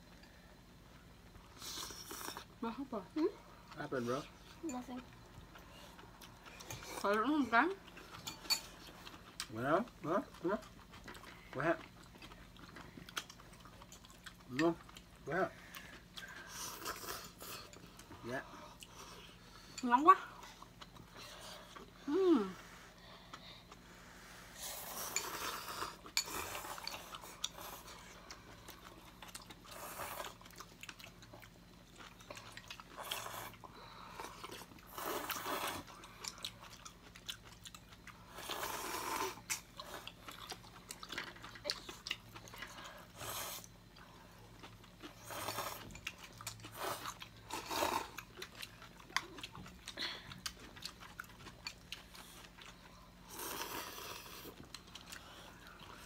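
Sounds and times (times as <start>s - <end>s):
chewing: 3.6s - 22.1s, 22.9s - 56.0s
slurping noodles: 38.3s - 40.0s.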